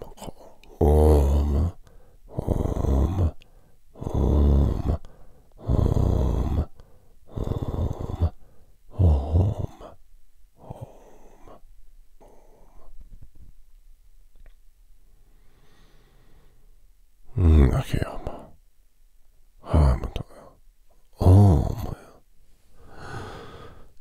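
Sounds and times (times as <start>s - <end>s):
man making rough breathy vocal sounds: 0.0s - 10.0s, 10.6s - 13.1s, 17.3s - 18.6s, 19.6s - 22.2s, 22.8s - 24.0s.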